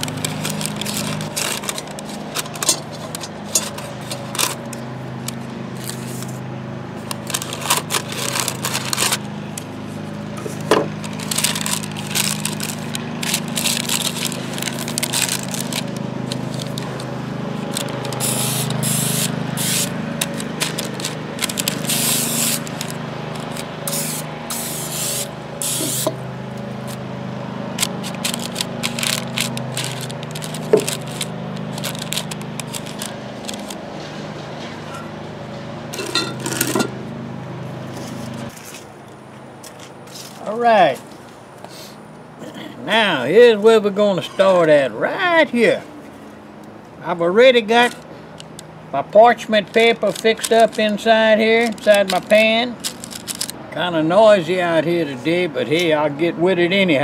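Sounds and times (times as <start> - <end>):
parchment paper crinkling: 0.0 - 6.4, 7.0 - 26.1, 27.8 - 33.8, 49.3 - 53.6
aerosol spray hissing: 18.2 - 19.9, 21.9 - 22.6, 23.9 - 26.1.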